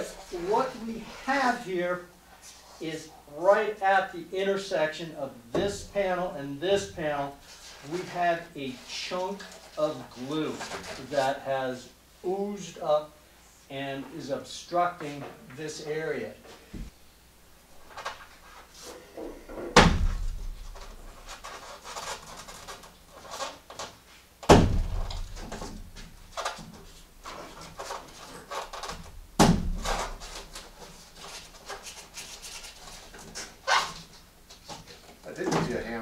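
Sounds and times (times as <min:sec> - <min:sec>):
heavy thuds: 0:19.5 - 0:21.1, 0:24.5 - 0:26.2.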